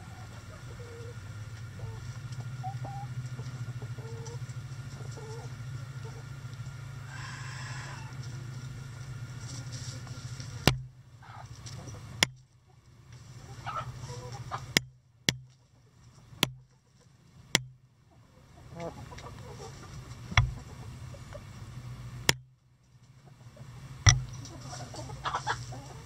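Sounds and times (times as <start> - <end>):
hens clucking softly: 0.0 - 14.8, 15.5 - 17.3, 18.0 - 21.9, 23.1 - 26.0
steady low hum: 0.0 - 26.0
sharp clicks: 24.1 - 24.5.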